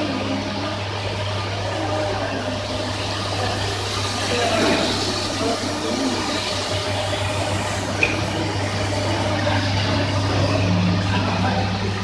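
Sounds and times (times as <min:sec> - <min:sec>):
machine motor hum: 0:00.0 - 0:12.0
water spraying onto carpet: 0:01.5 - 0:11.9.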